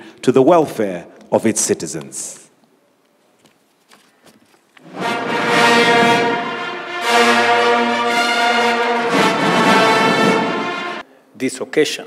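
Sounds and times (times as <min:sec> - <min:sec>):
brass band playing held chords: 0:04.8 - 0:11.0.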